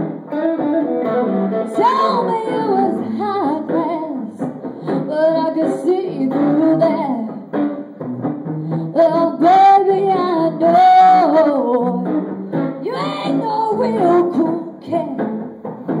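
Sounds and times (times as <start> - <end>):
strummed acoustic guitar: 0.0 - 16.0
woman singing into a microphone: 1.7 - 7.5, 8.8 - 15.5.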